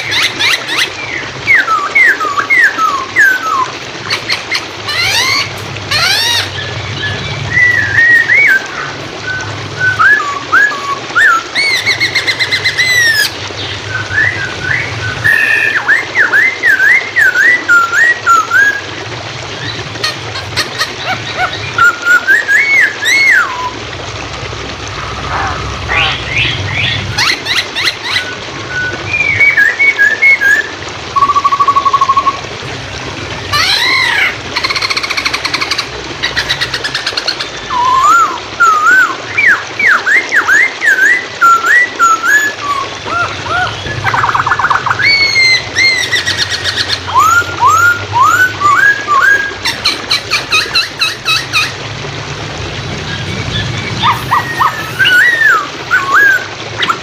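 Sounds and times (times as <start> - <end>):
running water hiss: 0.0 - 57.0
bird singing whistled phrases: 1.5 - 3.7, 6.2 - 13.3, 13.9 - 18.9, 21.8 - 23.8, 26.0 - 32.4, 37.7 - 51.7, 53.5 - 57.0.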